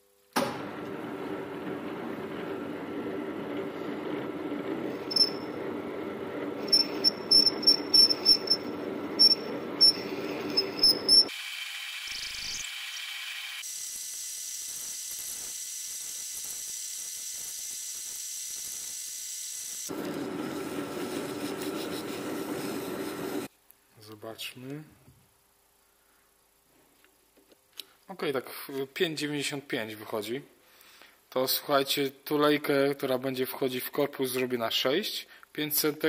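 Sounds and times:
lathe humming: 0.6 - 13.6, 19.9 - 23.5
thin high steady whine: 4.9 - 5.7, 6.4 - 11.3
cutting tool squeaks: 5.0 - 5.6, 6.6 - 11.3, 12.0 - 13.3.

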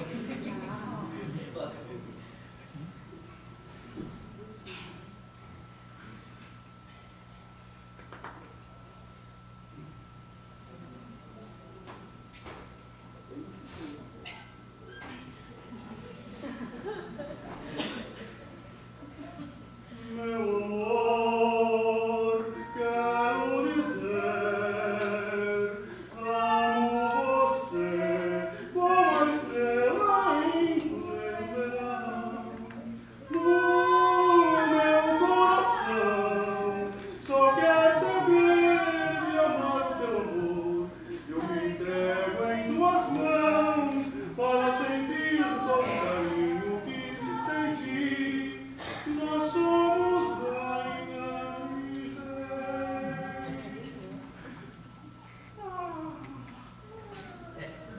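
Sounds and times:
singers with vibrato: 19.8 - 54.6.

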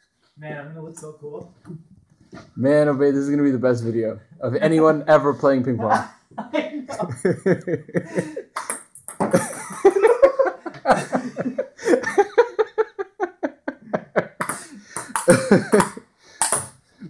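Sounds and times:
people laughing: 6.4 - 8.6, 9.3 - 16.0.

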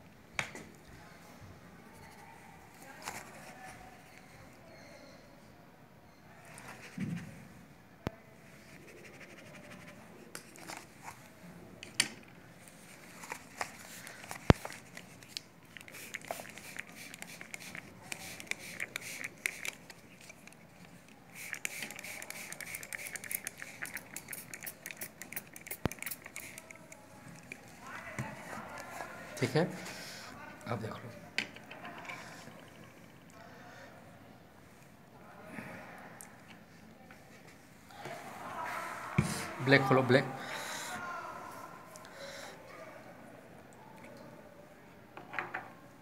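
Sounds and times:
paintbrush scratching on paper: 8.6 - 10.8, 15.8 - 20.6, 21.3 - 29.0.

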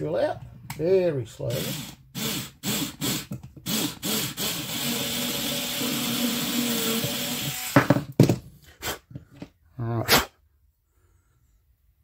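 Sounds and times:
battery drill drilling plastic: 1.5 - 7.8.

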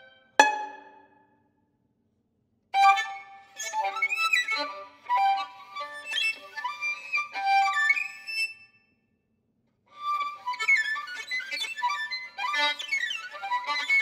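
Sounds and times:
solo violin: 0.0 - 1.0, 2.8 - 8.6, 9.9 - 14.0.

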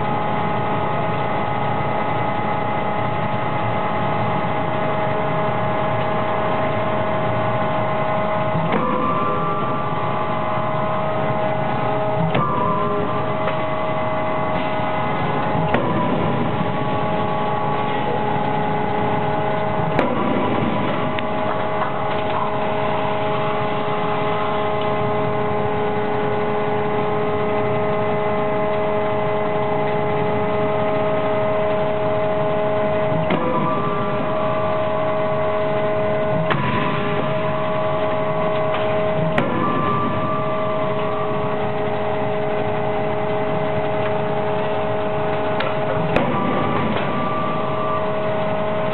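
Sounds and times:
machinery humming: 0.0 - 48.9.

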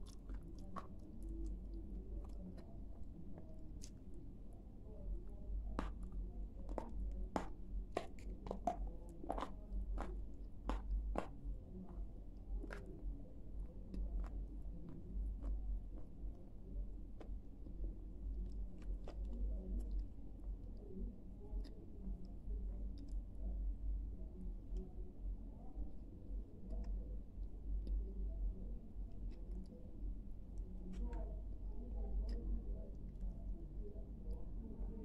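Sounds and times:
crunchy chewing: 0.0 - 4.0.

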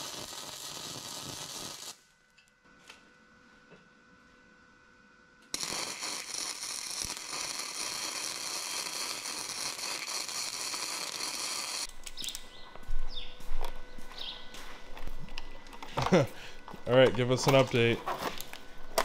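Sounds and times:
welder arc crackling: 0.0 - 2.5, 5.4 - 12.4.

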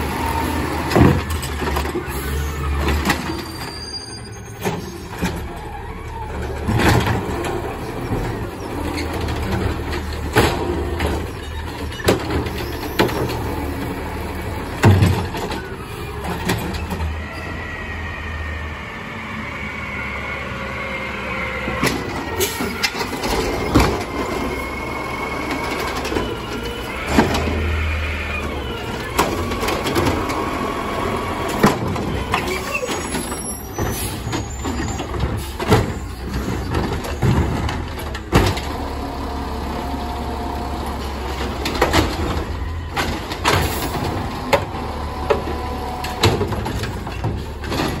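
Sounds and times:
garbage truck engine running: 0.0 - 48.0
hydraulic arm lifting carts: 0.0 - 48.0
carts banging against hopper: 0.8 - 3.8, 6.4 - 14.0, 14.6 - 17.0, 21.8 - 24.7, 25.3 - 39.0, 41.1 - 48.0.

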